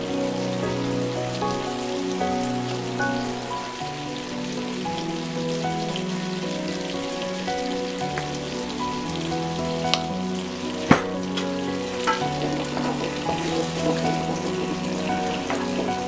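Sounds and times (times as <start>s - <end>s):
soft background music: 0.0s - 16.0s
chicken sizzling in a frying pan: 10.0s - 16.0s.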